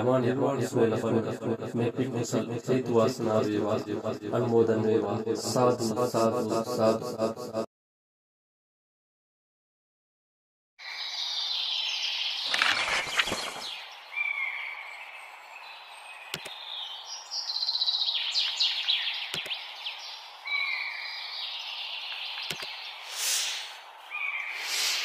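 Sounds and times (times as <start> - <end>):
birds chirping and singing: 10.9 - 25.0
mouse click sound effects: 16.3 - 16.6, 19.3 - 19.6, 22.4 - 22.8.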